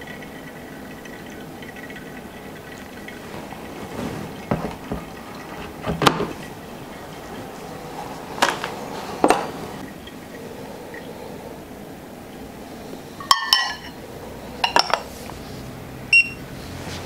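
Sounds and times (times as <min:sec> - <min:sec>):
kettle and ceramics knocking and clinking: 0:04.5 - 0:06.4, 0:13.2 - 0:14.0, 0:14.6 - 0:15.1
coffee dripping into glass server: 0:13.2 - 0:14.0.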